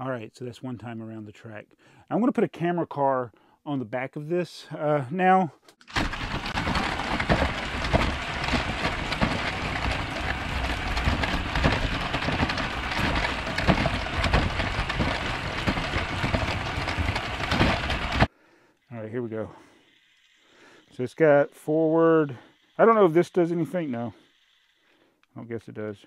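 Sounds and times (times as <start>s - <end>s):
toy train rattling on track: 6.0s - 18.3s, 19.9s - 24.9s.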